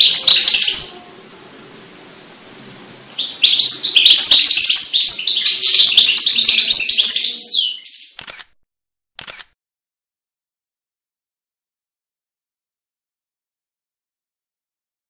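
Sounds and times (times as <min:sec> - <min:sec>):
finch singing: 0:00.0 - 0:01.2, 0:02.8 - 0:08.2.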